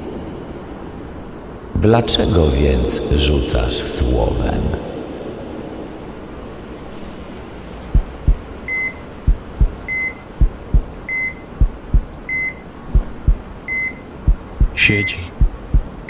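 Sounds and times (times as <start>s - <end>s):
heartbeat thumps: 7.9s - 8.5s, 9.2s - 12.2s, 12.9s - 13.5s, 14.2s - 16.0s
heart monitor beeps: 8.2s - 15.9s.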